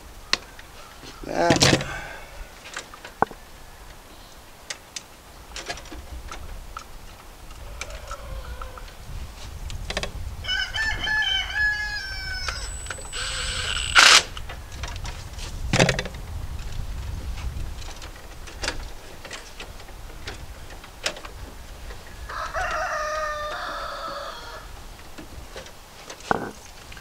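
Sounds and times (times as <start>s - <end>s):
rooster crowing: 7.6s - 9.0s, 10.4s - 13.7s, 22.2s - 24.8s.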